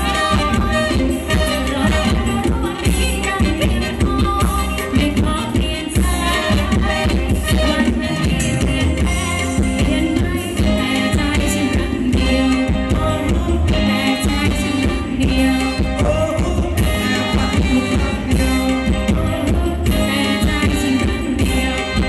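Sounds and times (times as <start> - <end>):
live band playing dance music: 0.0 - 22.0.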